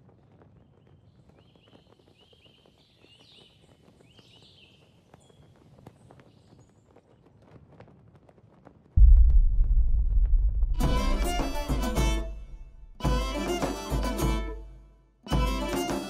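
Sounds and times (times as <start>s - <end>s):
low background rumble: 9.0s - 13.5s.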